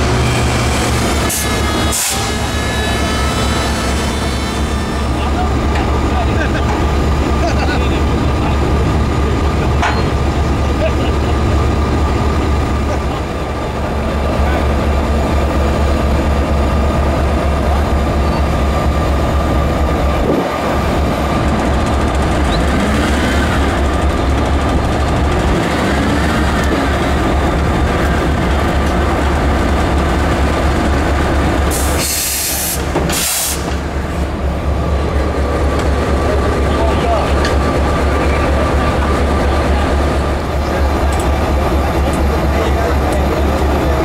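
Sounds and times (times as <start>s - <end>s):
diesel engine rumbling: 0.0s - 44.0s
short sharp hisses: 31.8s - 33.7s.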